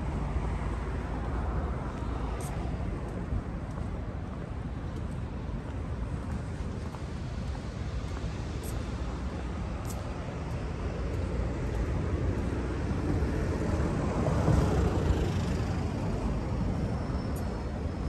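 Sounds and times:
city road traffic: 0.0 - 18.0.

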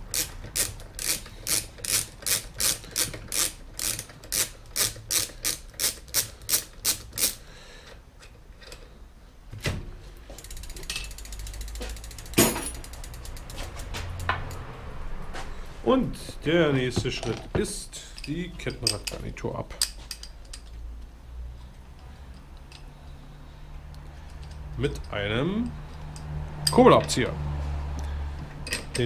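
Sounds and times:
ratchet wrench clicking: 0.0 - 7.5, 10.3 - 14.6, 19.8 - 21.1, 21.7 - 23.0, 23.8 - 27.2, 28.6 - 29.0.

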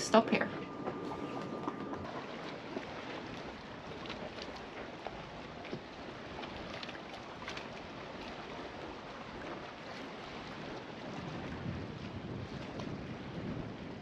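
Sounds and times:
water rushing: 0.0 - 12.4.

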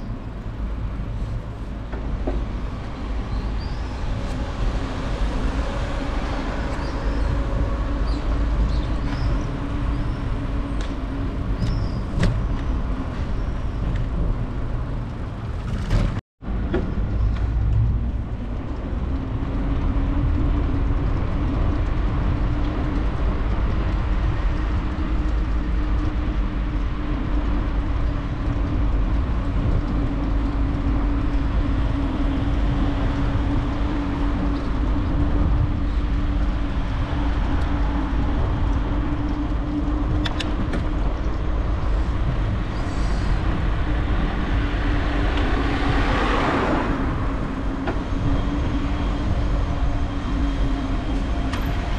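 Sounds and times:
wind buffeting microphone: 0.0 - 51.9.

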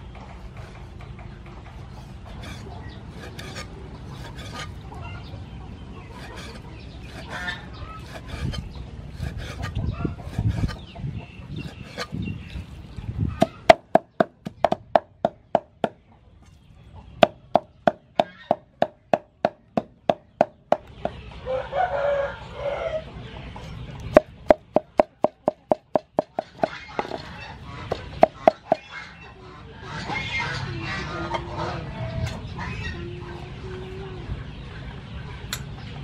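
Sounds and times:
chickens clucking: 0.0 - 36.0
meat cleaver chopping on wood: 17.2 - 20.9.

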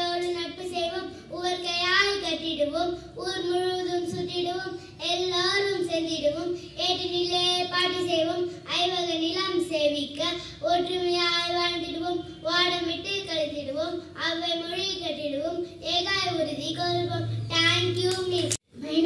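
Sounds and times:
girl singing into microphone: 0.0 - 19.0.

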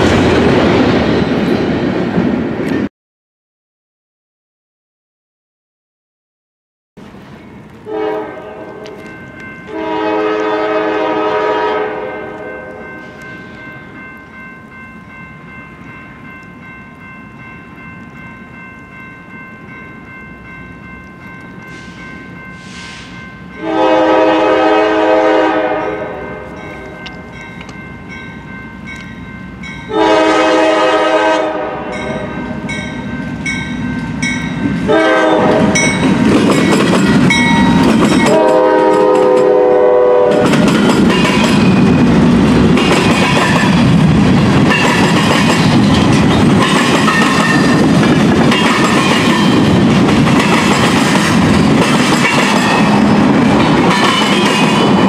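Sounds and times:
freight train rumble: 0.0 - 2.9, 7.0 - 55.0
locomotive horn: 7.8 - 9.1, 9.7 - 13.2, 22.6 - 26.6, 29.9 - 32.6, 34.9 - 35.9, 38.2 - 40.7
wheels clacking on rails: 32.0 - 55.0.

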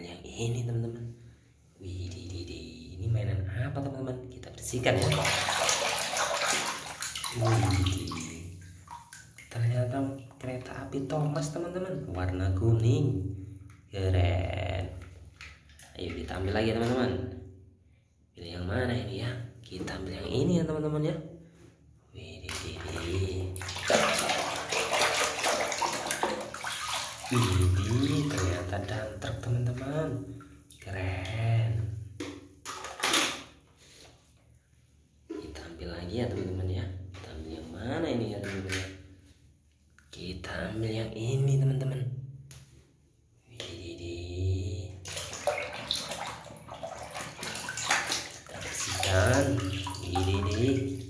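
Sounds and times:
water splashing in plastic basin: 4.6 - 10.7, 22.5 - 34.1, 44.9 - 51.0
hand scrubbing toy underwater: 4.7 - 9.6, 22.6 - 31.4, 45.1 - 51.0.

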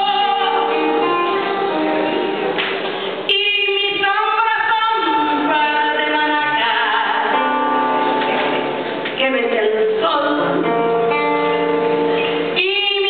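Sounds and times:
person singing into a microphone: 0.0 - 2.3, 3.3 - 8.0, 9.2 - 11.4, 12.4 - 13.0
instrumental accompaniment: 0.0 - 3.3.

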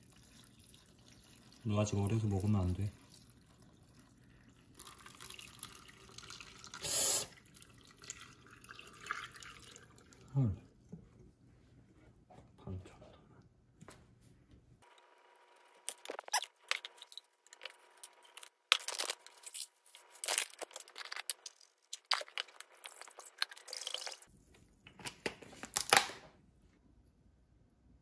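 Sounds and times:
kitchen prep crunching and scraping: 15.8 - 24.3.

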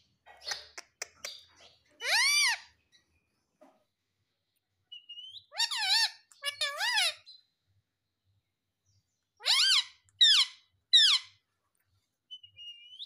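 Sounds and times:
parakeet calling: 0.4 - 3.0, 4.9 - 7.5, 9.4 - 11.4.

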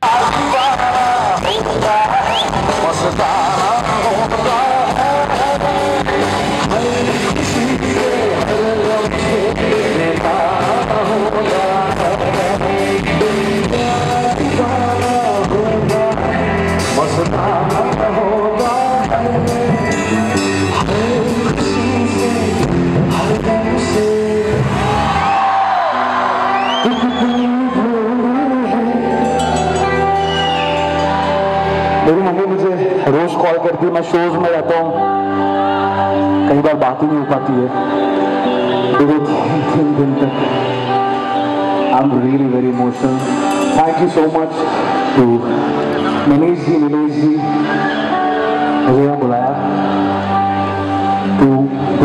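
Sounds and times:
man singing into a microphone: 0.0 - 25.0, 26.7 - 41.1
band with drums and guitar: 0.0 - 52.0.

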